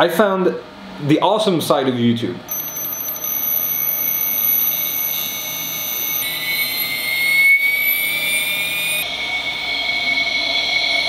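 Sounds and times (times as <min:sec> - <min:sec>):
electric motor high whine: 0:02.5 - 0:11.0.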